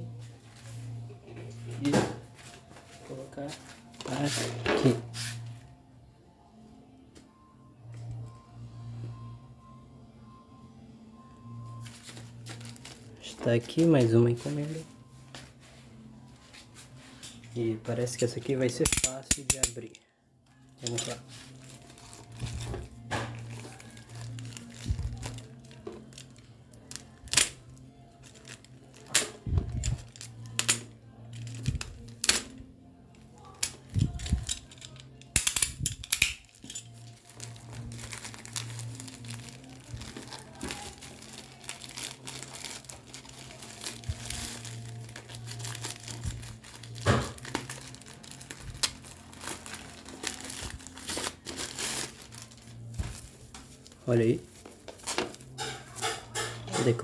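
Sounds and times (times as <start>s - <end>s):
plastic bag tearing and crinkling: 20.8s - 27.6s, 33.6s - 54.0s.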